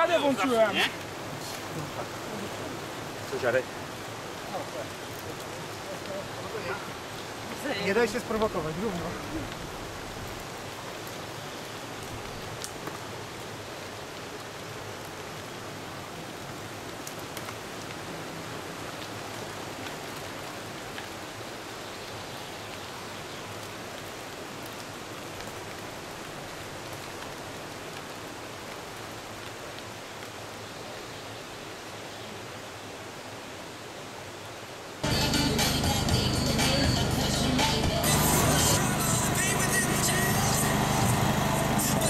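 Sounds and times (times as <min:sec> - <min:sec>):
bike tyres hissing on road: 0:37.7 - 0:42.0.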